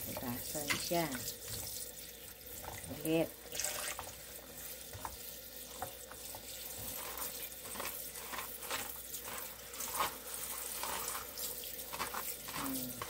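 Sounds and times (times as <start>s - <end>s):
tap water splashing into bowl: 0.0s - 7.0s.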